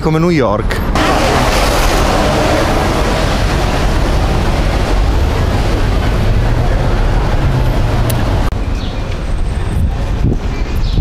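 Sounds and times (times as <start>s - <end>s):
vehicle rumbling in motion: 0.6s - 11.0s
low hum: 1.0s - 8.5s.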